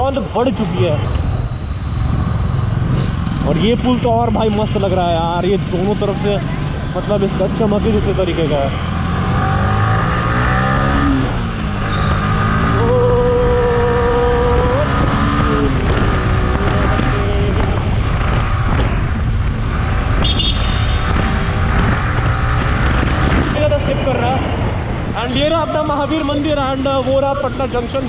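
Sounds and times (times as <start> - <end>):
motorcycle engine accelerating: 2.0 - 23.6
wind on microphone: 12.5 - 23.6.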